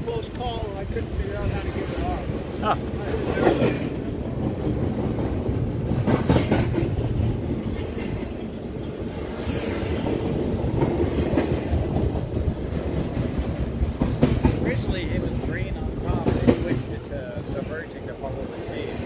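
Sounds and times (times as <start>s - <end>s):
freight train wheels rumbling: 0.0s - 19.0s
train clanks: 0.0s - 19.0s.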